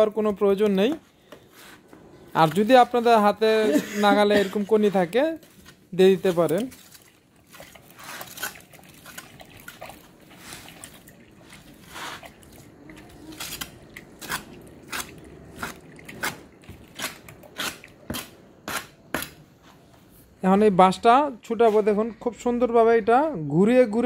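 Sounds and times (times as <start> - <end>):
trowel scraping wet plaster: 7.8 - 10.9, 11.5 - 19.4.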